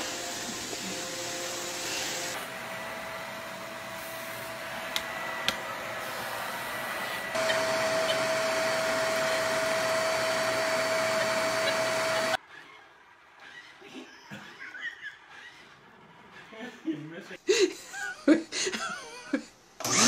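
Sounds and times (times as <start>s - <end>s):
vacuum cleaner running: 0.0s - 12.4s, 19.8s - 20.0s.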